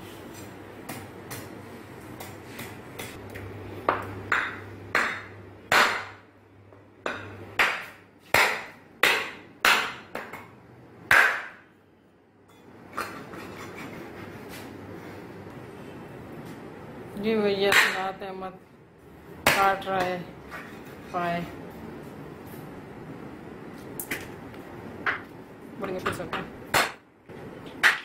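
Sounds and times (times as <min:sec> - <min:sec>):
cleaver chopping bones: 0:03.9 - 0:06.2, 0:07.1 - 0:10.4, 0:11.1 - 0:11.6, 0:26.7 - 0:27.0.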